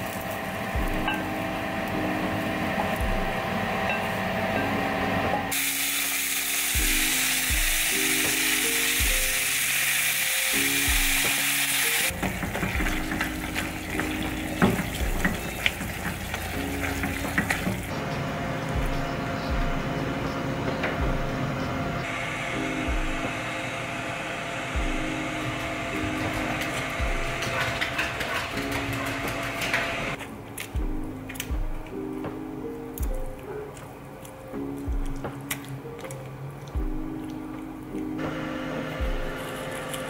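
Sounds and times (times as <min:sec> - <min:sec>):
lo-fi music with steady beat: 0:00.0 - 0:40.0
meat sizzling in a pan: 0:05.5 - 0:13.2.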